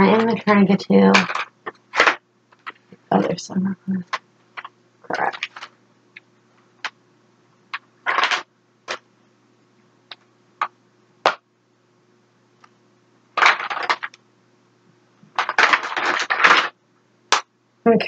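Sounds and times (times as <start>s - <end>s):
makeup cases clicking and clattering: 1.1s - 2.8s, 4.1s - 5.7s, 8.1s - 9.0s, 13.4s - 14.2s, 15.3s - 16.7s.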